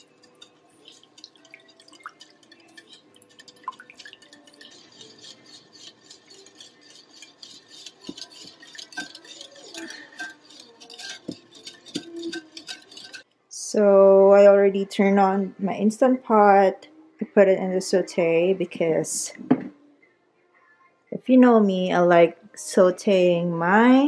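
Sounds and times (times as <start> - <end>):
whisk beating liquid in glass bowl: 0.0 - 13.2.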